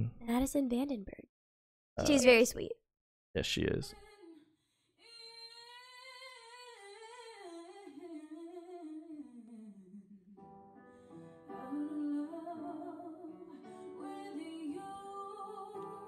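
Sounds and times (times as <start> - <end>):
woman singing: 4.0 - 10.0, 11.5 - 16.0.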